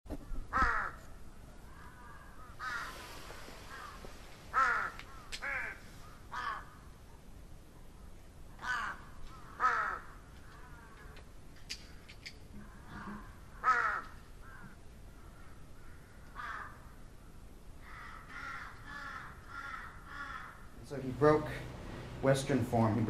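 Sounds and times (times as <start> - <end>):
harsh cawing calls: 0.5 - 1.0, 1.7 - 6.9, 8.6 - 11.2, 12.6 - 17.1, 17.8 - 22.2.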